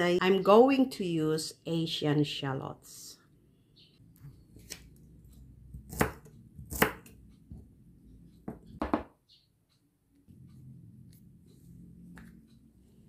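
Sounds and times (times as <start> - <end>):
knife chopping on wooden board: 5.7 - 7.7.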